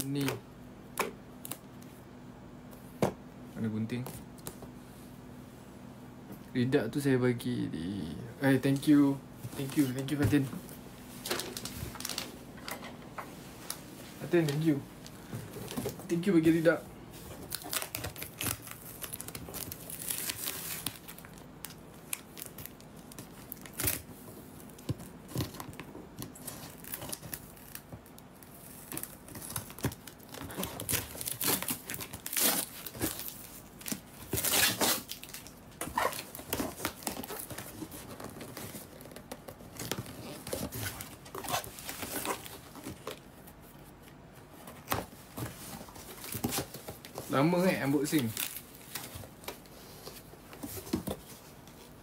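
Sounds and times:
cardboard and paper rustling: 8.7 - 12.4, 22.0 - 52.0
tape ripping: 28.8 - 43.1.

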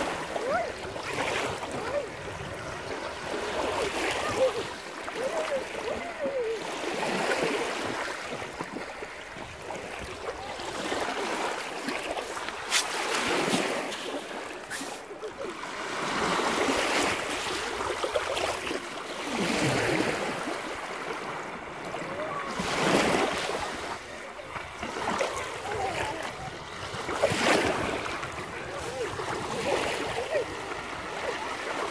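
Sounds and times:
waves washing over pebbles: 0.0 - 31.9.

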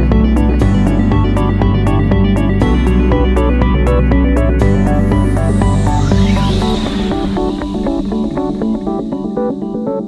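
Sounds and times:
trance synth music with heavy bass: 0.0 - 10.0
whooshing sweep effect: 4.3 - 9.7.

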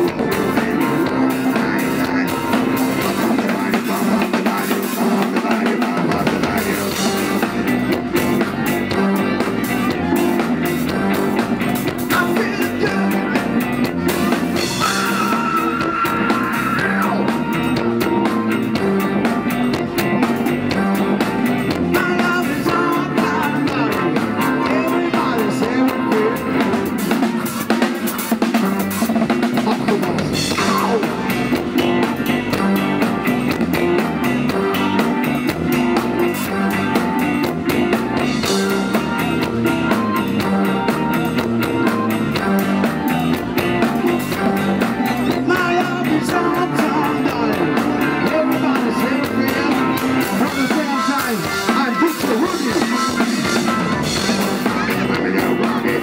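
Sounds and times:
bass guitar: 0.0 - 56.0
drum kit: 0.0 - 56.0
electric guitars: 0.0 - 56.0
man singing into microphone: 3.2 - 7.3, 12.1 - 13.6, 21.9 - 26.7, 45.3 - 53.6, 54.4 - 56.0.

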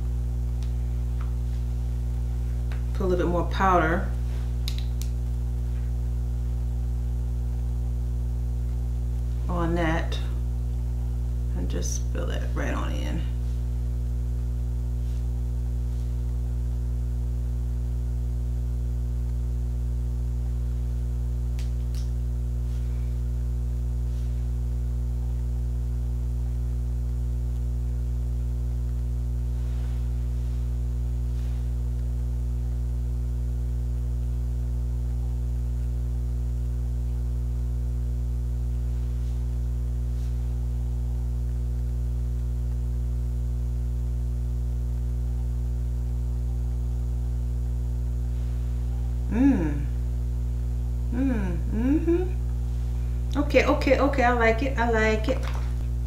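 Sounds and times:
electrical mains hum: 0.0 - 56.0
woman humming: 48.9 - 50.2, 51.0 - 52.6.

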